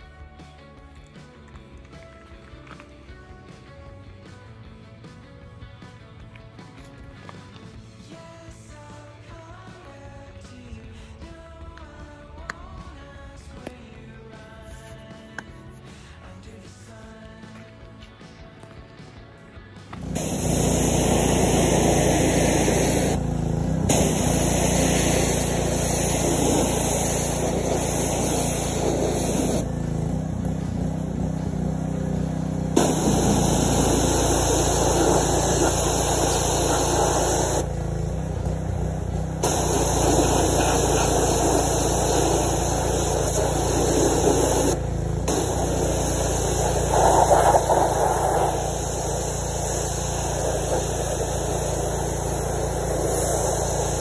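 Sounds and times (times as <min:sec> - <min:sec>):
small engine droning: 0:19.8 - 0:54.0
water spray hissing: 0:19.9 - 0:54.0.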